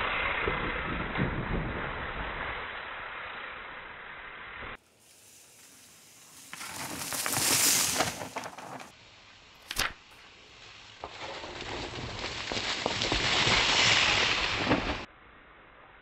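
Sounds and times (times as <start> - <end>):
bike tyres crunching on dirt: 4.8 - 15.1
sharp click: 9.6 - 10.0.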